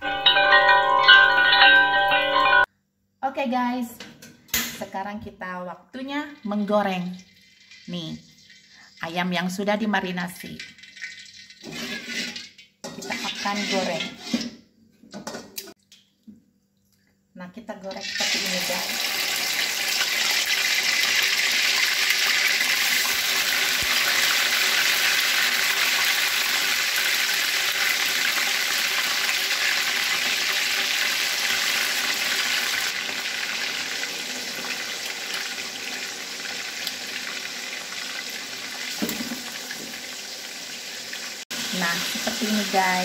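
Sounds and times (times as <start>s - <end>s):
chicken frying in hot oil: 6.5s - 9.2s, 10.6s - 14.3s, 18.0s - 43.0s.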